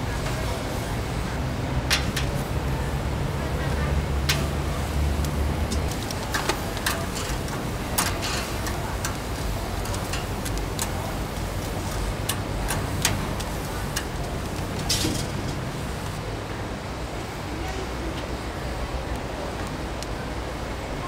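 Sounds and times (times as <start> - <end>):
steady low rumble: 0.0 - 17.4
sharp clicks and ticks: 4.2 - 16.2.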